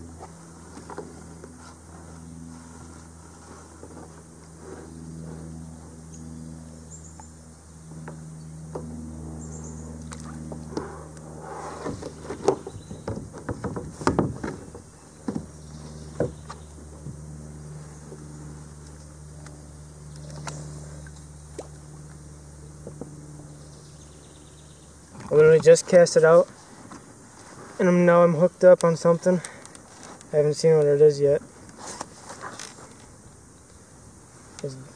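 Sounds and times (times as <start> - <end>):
propeller plane engine drone: 0.0 - 34.9
paddle knocking on plastic kayak: 11.9 - 15.5.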